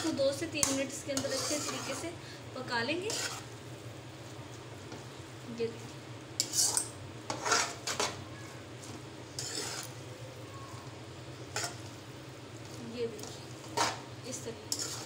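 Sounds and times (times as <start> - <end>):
forks scraping a pan: 0.0 - 2.2, 3.0 - 3.5, 6.4 - 8.2, 9.3 - 10.0, 11.5 - 11.9, 13.2 - 15.0.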